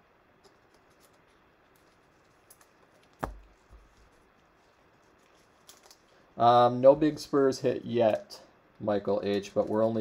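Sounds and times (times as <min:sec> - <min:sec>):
cards clicking and rustling: 0:00.4 - 0:06.3
sharp tap: 0:03.2 - 0:03.5.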